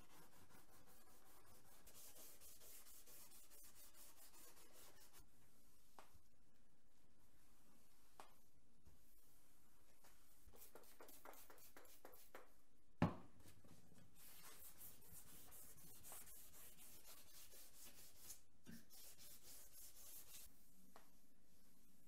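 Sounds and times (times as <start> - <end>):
hand sanding strokes: 14.2 - 20.5.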